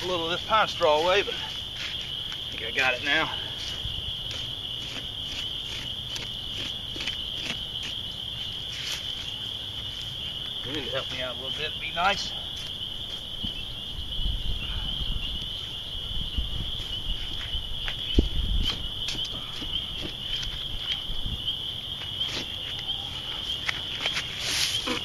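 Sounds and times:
pine straw crackling underfoot: 0.0s - 11.6s, 23.6s - 25.0s
night insects chorus: 0.0s - 25.0s.

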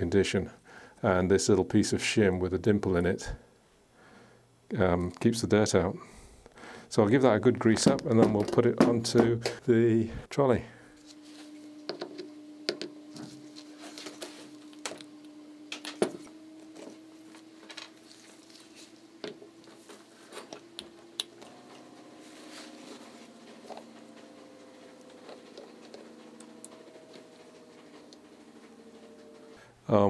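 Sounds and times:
low hum: 6.4s - 30.0s.

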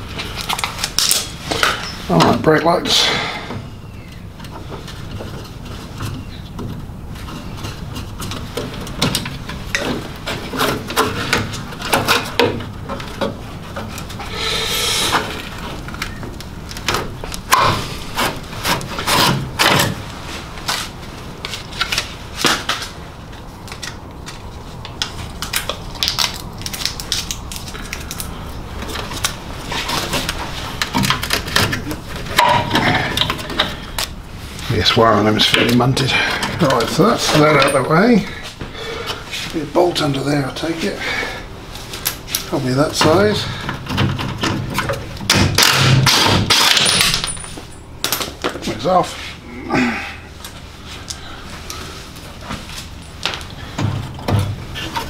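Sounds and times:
wires and connectors clicking and rustling: 0.1s - 2.4s, 4.0s - 14.3s, 15.1s - 38.3s, 41.7s - 49.1s
long scrape: 14.3s - 15.4s.

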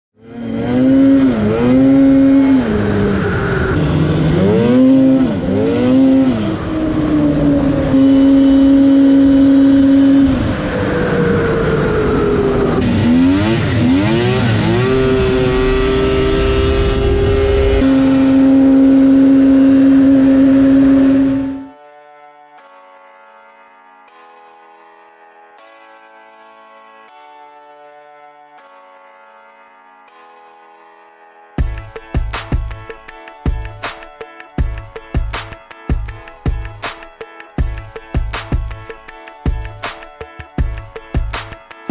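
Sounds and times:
snowmobile engine running: 0.2s - 21.7s.

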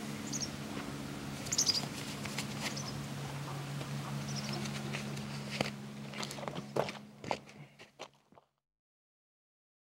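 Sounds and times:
steady low hum: 0.0s - 8.2s
small animal squeaky chirps: 0.2s - 0.5s, 1.5s - 1.9s.

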